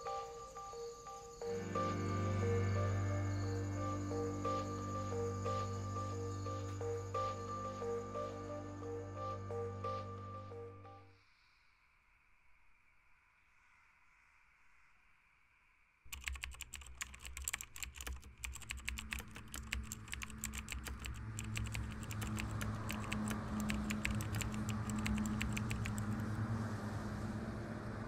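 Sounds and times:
laptop keyboard typing: 16.1s - 26.4s.

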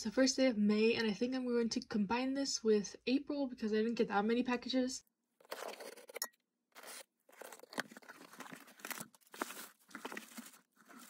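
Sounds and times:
plastic packing crinkling: 6.8s - 11.0s.

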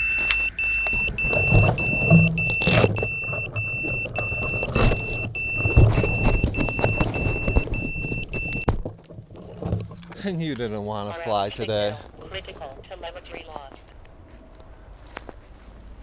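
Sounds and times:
shrill buzzer beeping: 0.0s - 8.7s.

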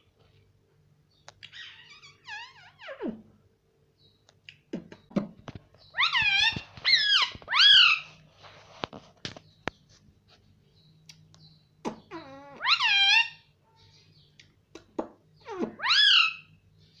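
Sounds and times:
parakeet calling: 1.4s - 3.2s, 5.8s - 8.2s, 11.4s - 14.3s, 15.4s - 16.9s.

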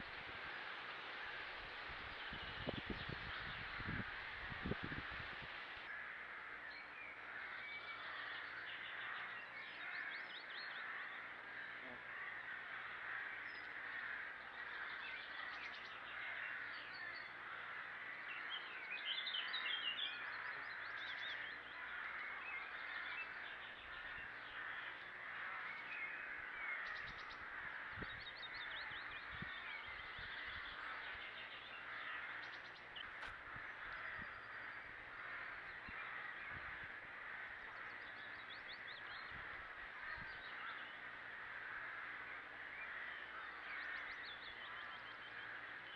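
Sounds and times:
steady hiss: 0.0s - 6.0s
crows calling: 0.0s - 45.9s.

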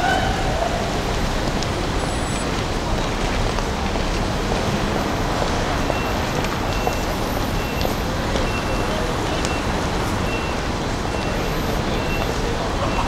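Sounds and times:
cars passing: 0.0s - 13.0s
faint high beeps: 2.0s - 2.5s, 5.1s - 13.0s.

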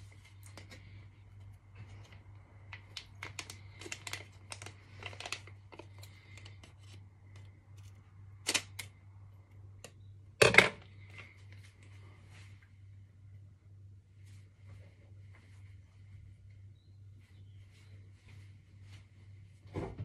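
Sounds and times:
packet crinkling: 1.7s - 9.0s.

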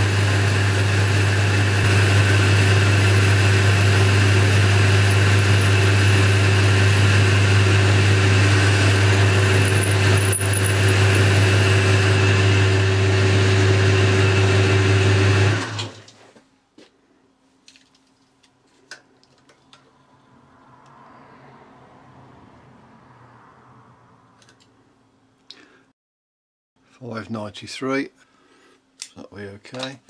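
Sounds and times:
metal lathe motor humming: 0.0s - 15.9s.

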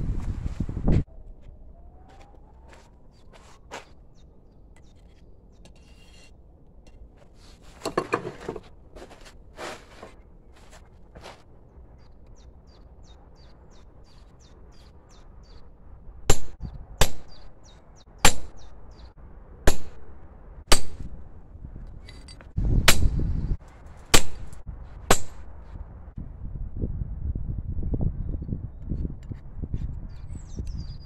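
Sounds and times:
low rumble: 24.6s - 28.8s.

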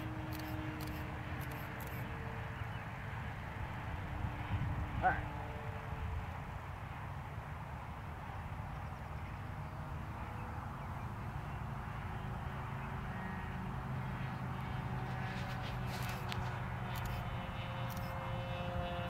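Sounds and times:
sharp clicks: 0.0s - 2.1s, 16.0s - 18.1s
model airplane engine droning: 0.0s - 19.0s.

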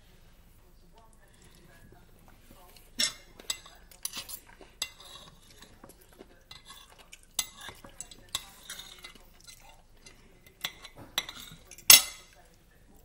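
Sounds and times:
cutlery scraping china plate: 2.8s - 12.4s.

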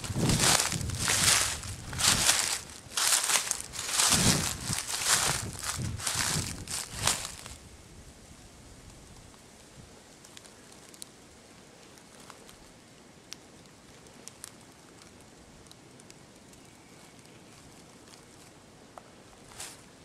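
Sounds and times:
faint outdoor hiss: 0.0s - 20.0s
small ticks and clicks: 11.8s - 19.1s.

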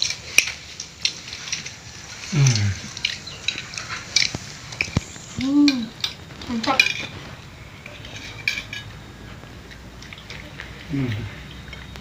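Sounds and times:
dishes clinking: 7.8s - 9.0s.

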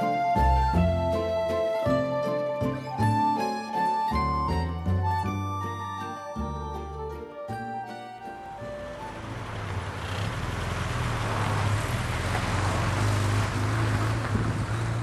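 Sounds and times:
car engine running: 8.4s - 15.0s.

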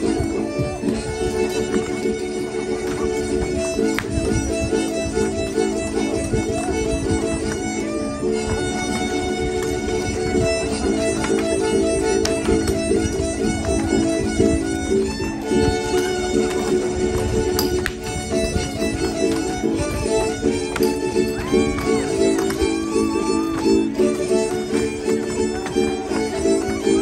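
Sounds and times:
fiddle melody: 0.0s - 27.0s.

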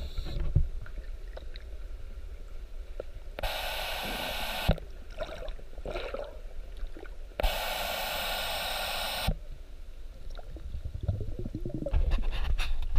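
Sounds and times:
steady hiss: 0.0s - 0.4s, 1.9s - 4.9s, 7.4s - 10.3s
low underwater rumble: 10.0s - 12.6s.

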